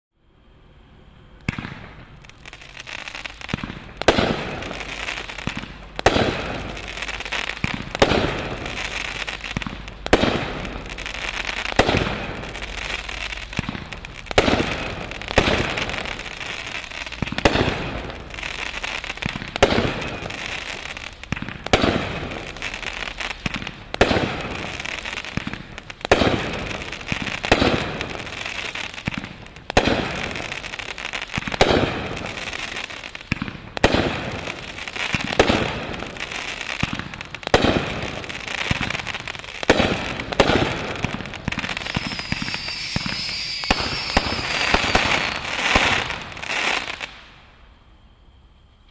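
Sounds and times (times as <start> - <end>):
firework bangs: 1.4 - 47.5
firework hiss: 1.4 - 47.6
faint high whistle: 41.6 - 48.9.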